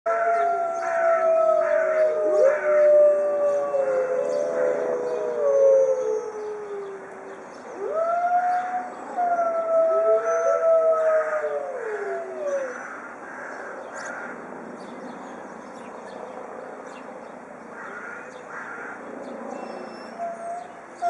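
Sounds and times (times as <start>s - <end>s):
wolves howling in chorus: 0.1s - 13.1s.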